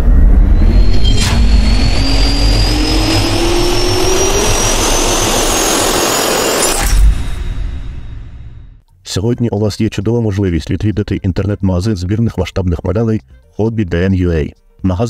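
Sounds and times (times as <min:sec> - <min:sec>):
jet engine roar with rising whine: 0:00.0 - 0:08.6.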